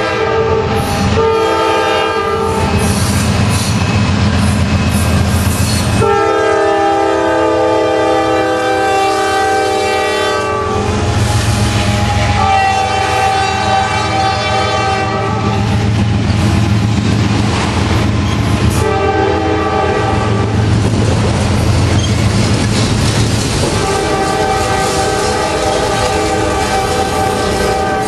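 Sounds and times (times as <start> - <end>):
locomotive air horn blasts: 0.0 - 3.0, 5.9 - 15.9, 18.8 - 20.6, 23.7 - 28.0
rail cars rolling past: 0.0 - 28.0.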